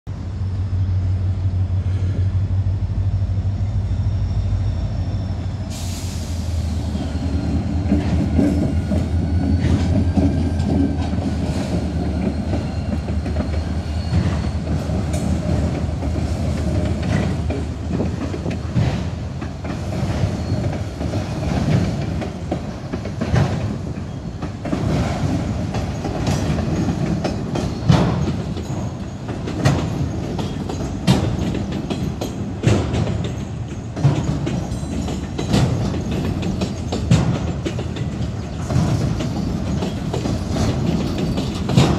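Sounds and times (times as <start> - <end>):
high wheel squeals: 2.0 - 10.6, 11.5 - 15.5
train wheels clacking over rail joints: 5.8 - 41.9.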